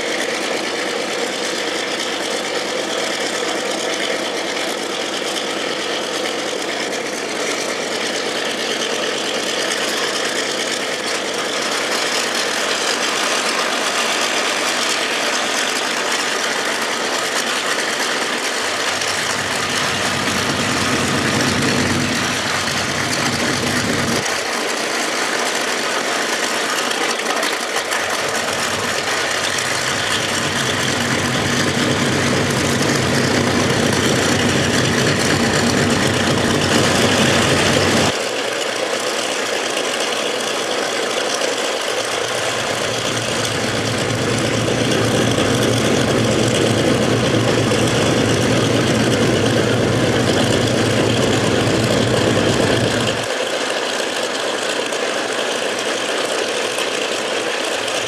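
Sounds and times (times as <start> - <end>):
aircraft radial engines idling: 0.0 - 58.0
deep low engine note: 18.7 - 24.3, 27.9 - 38.1, 42.1 - 53.3.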